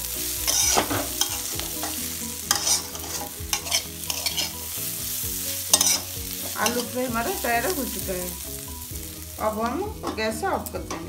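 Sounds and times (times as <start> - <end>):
metal spatula scraping a pan: 0.0 - 8.2
potatoes sizzling in oil: 0.0 - 11.0.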